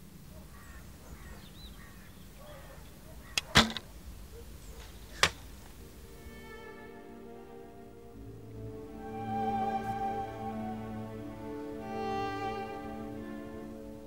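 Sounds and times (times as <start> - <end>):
faint bird calls: 0.0 - 5.7
sharp crack: 3.4 - 3.9, 5.1 - 5.5.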